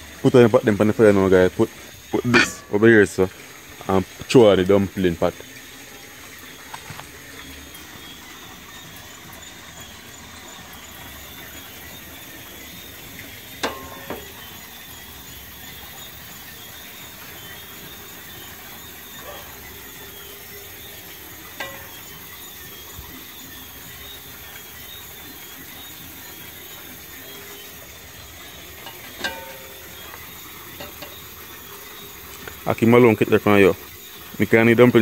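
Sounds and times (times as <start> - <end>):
night insects chirping: 0.0 - 35.0
steady hiss: 0.0 - 35.0
knocks against metal pot: 2.3 - 2.8, 13.6 - 14.5, 21.5 - 22.3, 28.8 - 31.3.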